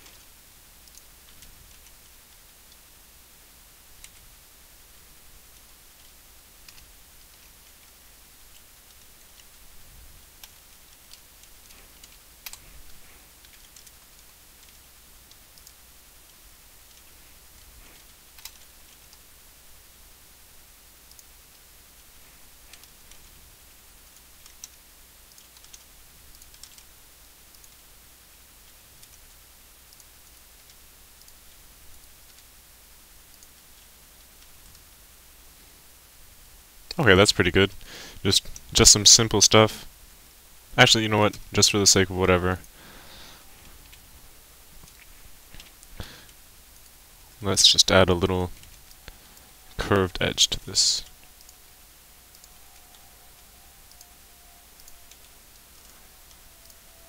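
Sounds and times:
low hum: 0.0s - 57.0s
steady low hiss: 0.0s - 57.0s
computer keyboard and mouse clicks: 10.4s - 12.7s, 13.4s - 15.8s, 18.0s - 19.2s, 24.4s - 26.9s.

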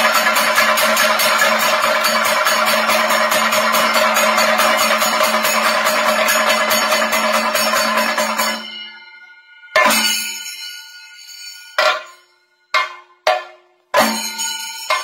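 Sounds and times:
drums played with sticks in rolls: 0.0s - 8.6s, 11.8s - 15.0s
hand cymbals beating: 0.0s - 15.0s.

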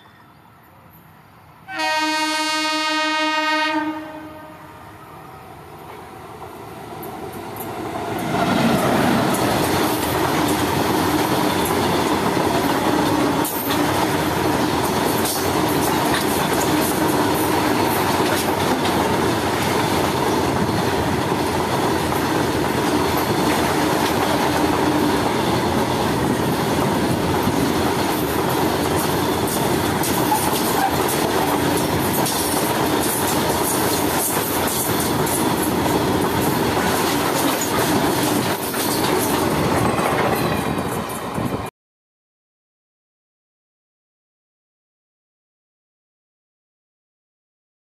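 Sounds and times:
freight train passing: 0.0s - 41.7s
wheels clattering on track: 26.5s - 41.6s.

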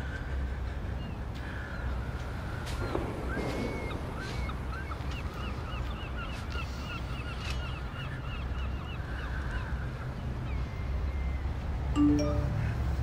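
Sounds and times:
flock of birds calling: 0.0s - 11.6s.

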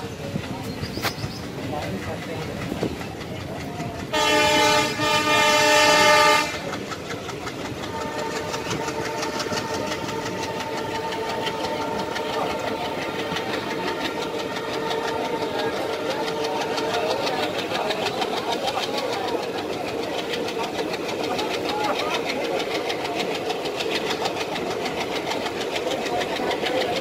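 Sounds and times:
train wheels clattering over rails: 0.0s - 27.0s
locomotive horn blast: 4.1s - 6.6s, 7.8s - 16.9s.

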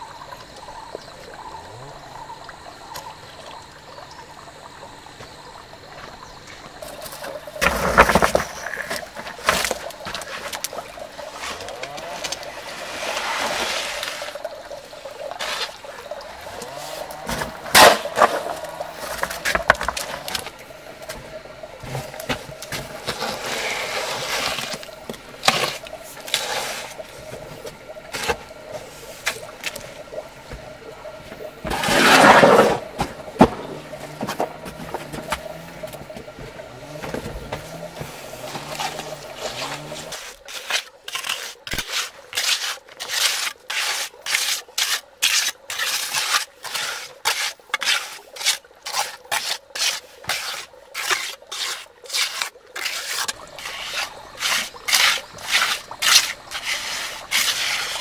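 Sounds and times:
hoe scraping wet mortar: 6.5s - 30.6s, 31.6s - 58.0s
trowel scraping mortar: 6.8s - 14.4s, 16.5s - 20.5s, 21.8s - 27.0s, 31.6s - 36.0s, 36.8s - 58.0s.

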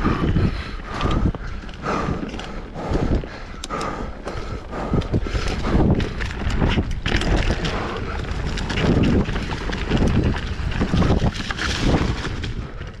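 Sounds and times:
wind buffeting microphone: 0.0s - 13.0s
mountain bike rattling over rocks: 4.2s - 13.0s.

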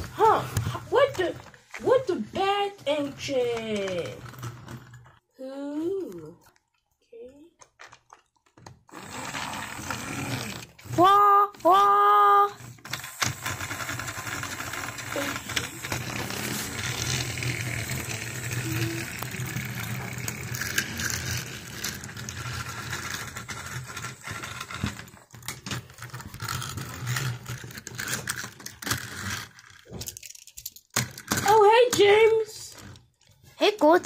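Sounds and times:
toy trains rattling on track: 0.2s - 5.2s, 8.1s - 34.0s
plastic pieces knocking: 7.6s - 33.2s.

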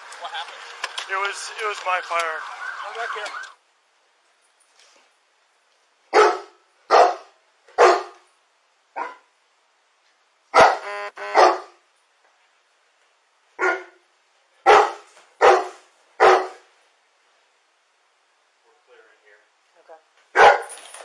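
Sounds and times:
dog barking: 6.1s - 8.2s, 9.0s - 9.3s, 10.5s - 11.8s, 13.6s - 14.0s, 14.6s - 16.7s, 20.3s - 20.7s.

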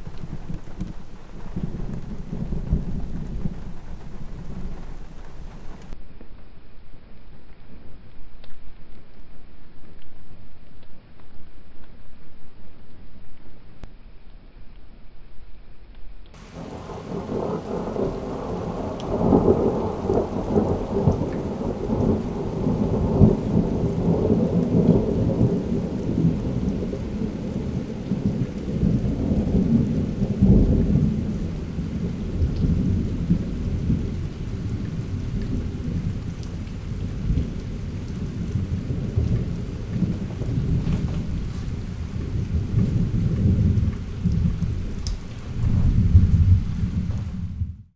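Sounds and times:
rolling thunder: 0.0s - 6.0s, 16.4s - 47.9s.

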